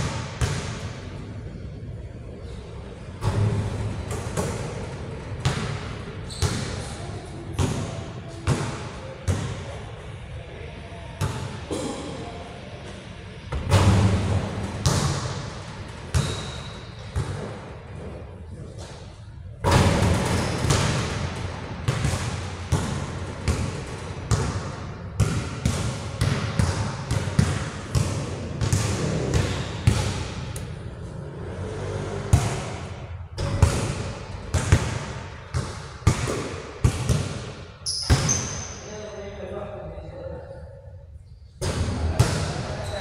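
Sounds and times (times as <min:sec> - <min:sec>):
basketball bouncing on court: 0:00.0 - 0:01.0, 0:05.4 - 0:06.8, 0:13.5 - 0:17.7, 0:19.7 - 0:30.7, 0:32.2 - 0:38.8, 0:41.6 - 0:42.6.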